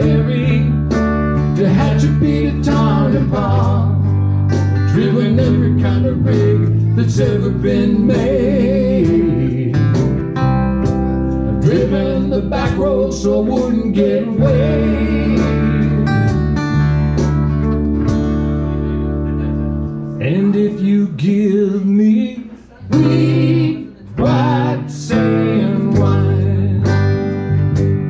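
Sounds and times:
person singing: 0.0 - 4.2, 4.8 - 10.1, 11.5 - 16.4, 20.2 - 27.2
live band with guitars: 0.0 - 28.0.

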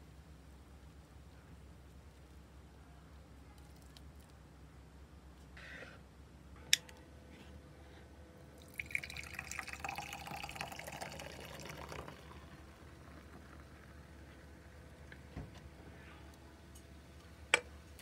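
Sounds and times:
carbonated drink pouring and fizzing: 8.6 - 14.8.

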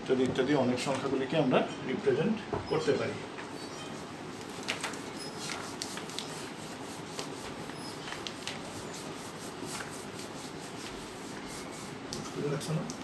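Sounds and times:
eraser rubbing on whiteboard: 3.5 - 13.0.

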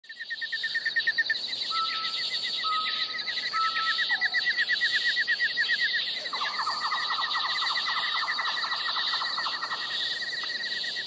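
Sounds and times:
whistled bird notes: 0.2 - 11.0.

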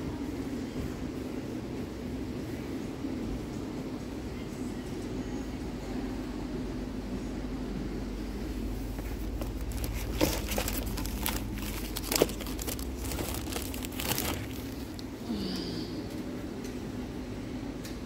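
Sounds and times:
low hum of ventilation: 0.0 - 18.0
crinkling and rustling: 8.8 - 15.2.

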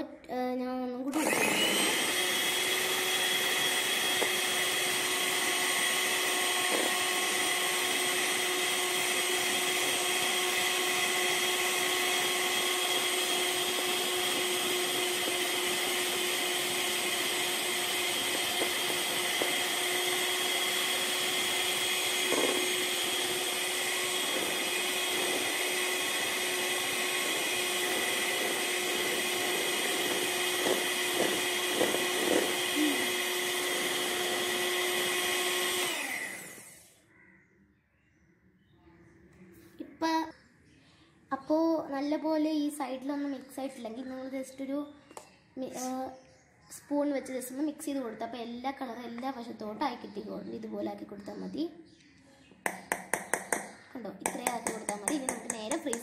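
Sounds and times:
electric hand mixer running: 1.1 - 37.0, 52.7 - 56.0.

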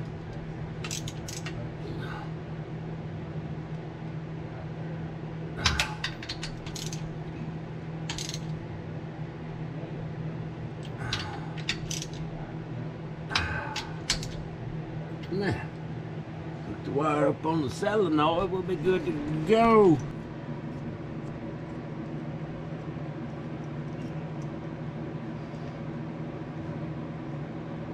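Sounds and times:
steady low hum: 0.0 - 27.9
wrench clicking against metal: 0.8 - 1.5, 5.6 - 7.0, 8.1 - 8.5, 10.8 - 12.2, 13.4 - 14.4.

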